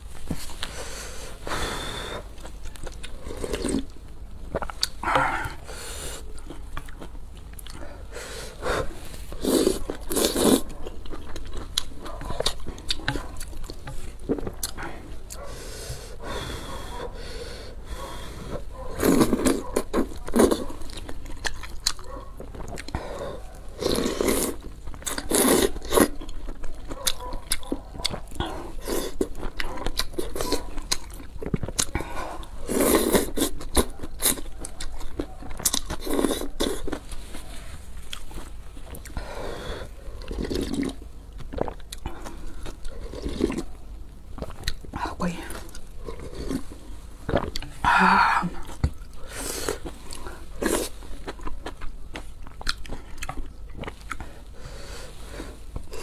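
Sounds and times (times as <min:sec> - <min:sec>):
chewing: 0:00.2 - 0:17.3, 0:17.9 - 0:47.8, 0:48.6 - 0:56.0
slurping noodles and broth: 0:08.0 - 0:10.7, 0:15.5 - 0:20.7, 0:22.6 - 0:26.2, 0:31.9 - 0:34.4.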